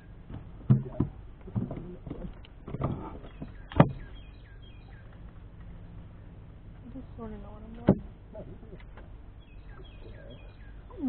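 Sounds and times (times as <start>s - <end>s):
dull knocks on a boat: 0.3s - 4.1s
small bird chirping: 3.2s - 7.3s, 8.6s - 11.0s.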